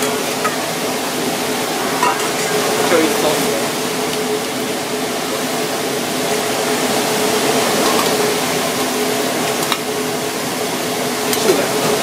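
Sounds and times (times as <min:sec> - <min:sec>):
gas range hiss and hum: 0:00.0 - 0:12.0.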